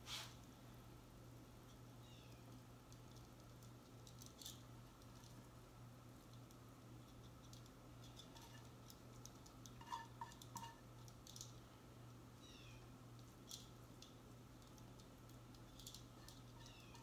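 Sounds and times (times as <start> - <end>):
metal tongs scraping frying pans: 9.8 - 10.8.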